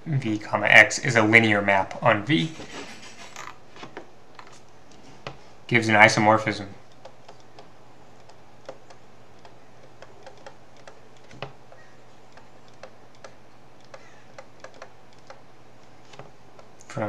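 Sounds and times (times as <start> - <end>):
low electrical hum: 0.0 - 17.0
stylus tapping on tablet screen: 6.9 - 16.8.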